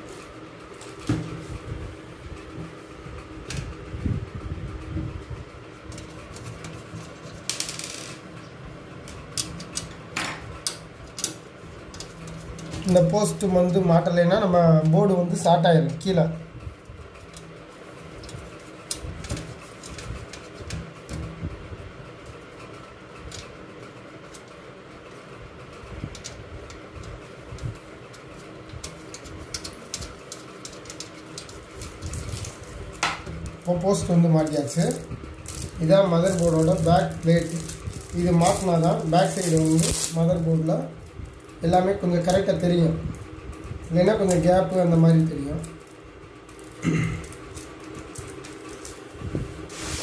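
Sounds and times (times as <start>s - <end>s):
faint hum: 0.0s - 50.0s
short rattling scrape: 49.7s - 50.0s.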